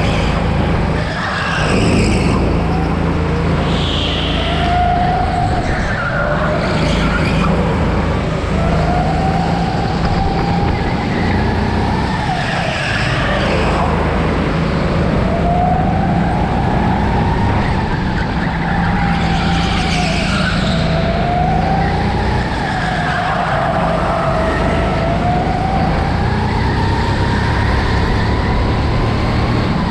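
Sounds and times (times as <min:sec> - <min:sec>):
tyre squeal: 0:03.6 - 0:07.6, 0:18.2 - 0:21.0.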